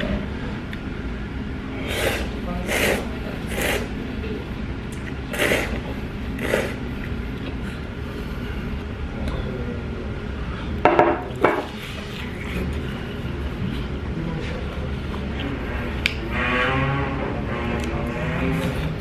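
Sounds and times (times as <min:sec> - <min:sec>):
person slurping noodles: 0:01.7 - 0:04.0, 0:05.3 - 0:06.9.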